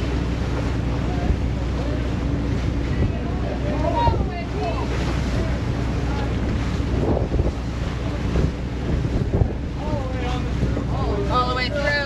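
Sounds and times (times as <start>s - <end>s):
sea washing along hull: 0.0s - 12.0s
wind buffeting microphone: 0.0s - 12.0s.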